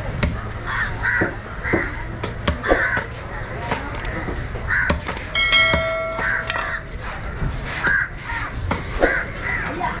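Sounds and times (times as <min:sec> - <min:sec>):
crows cawing: 0:00.7 - 0:02.0, 0:04.7 - 0:05.0
bell-like chime: 0:05.3 - 0:06.8.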